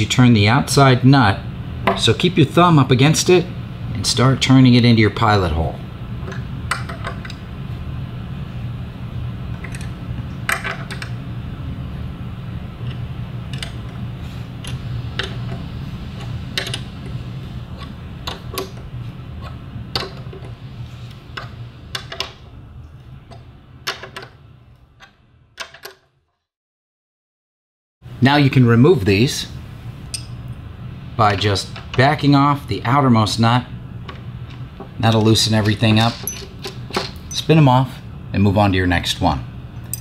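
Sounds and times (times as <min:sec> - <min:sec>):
steady low hum: 0:00.0 - 0:25.6, 0:28.0 - 0:40.0
nuts and screw clicking: 0:12.8 - 0:14.0, 0:16.2 - 0:16.9, 0:35.6 - 0:37.4.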